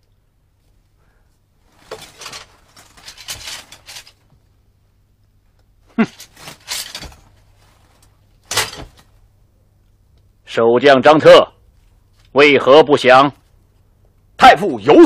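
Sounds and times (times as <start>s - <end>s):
bamboo slips rustling and clattering: 1.6s - 4.5s, 6.0s - 9.2s.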